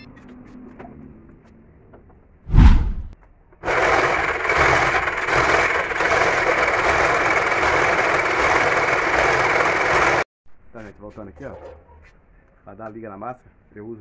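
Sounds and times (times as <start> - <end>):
heavy low thump: 2.5 - 3.2
electric concrete mixer running: 3.6 - 10.2.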